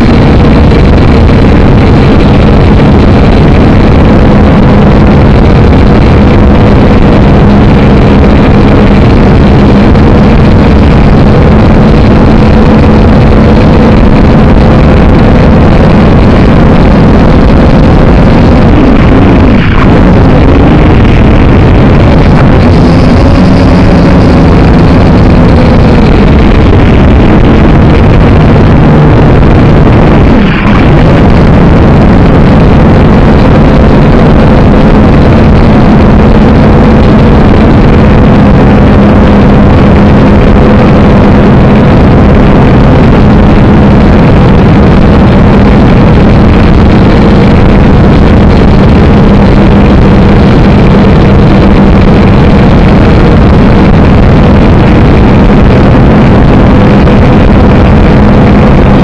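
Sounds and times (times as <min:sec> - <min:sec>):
drone motors buzzing: 0:00.0 - 0:42.2.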